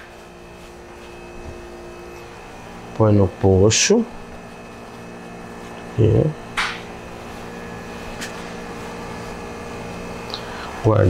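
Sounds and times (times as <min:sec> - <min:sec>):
bakery equipment hum: 0:00.0 - 0:11.0
cloth rustle: 0:00.1 - 0:02.4.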